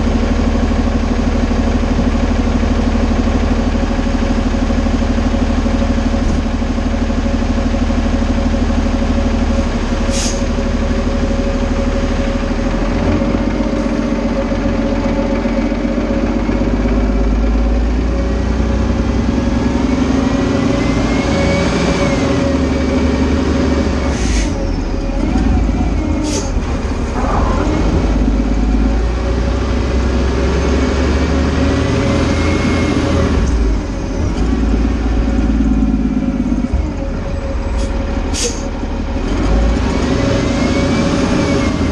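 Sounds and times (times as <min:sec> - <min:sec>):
diesel truck engine driving off: 0:00.0 - 0:41.9
air brake hisses: 0:10.1 - 0:10.5, 0:24.1 - 0:24.6, 0:26.2 - 0:26.6, 0:37.8 - 0:38.7.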